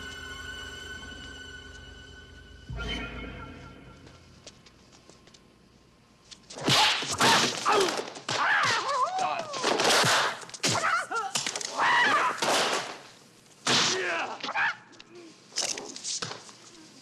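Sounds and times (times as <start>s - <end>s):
fighters shouting and crying: 6.8s - 9.8s.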